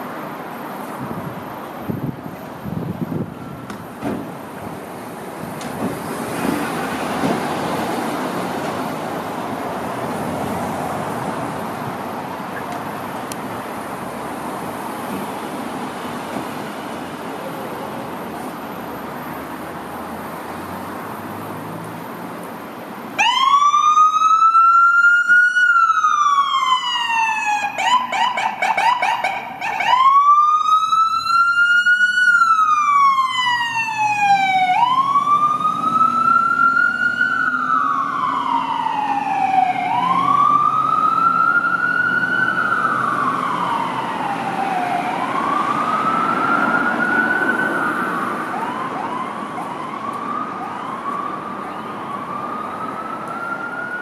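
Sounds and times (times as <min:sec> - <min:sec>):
electronic siren wailing: 0:23.2 - 0:51.1.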